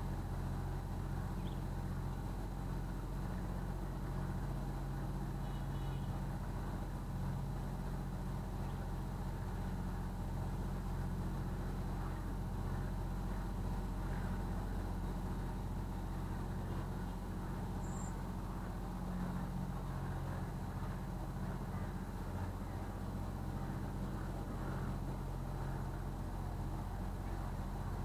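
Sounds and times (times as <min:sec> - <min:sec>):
boat engine humming: 0:00.0 - 0:28.0.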